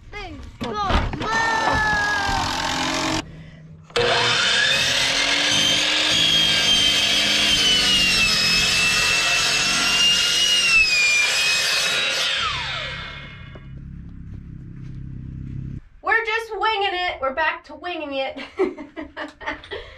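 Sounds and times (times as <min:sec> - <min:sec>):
miter saw cutting wood: 0:02.0 - 0:03.3, 0:03.9 - 0:13.7.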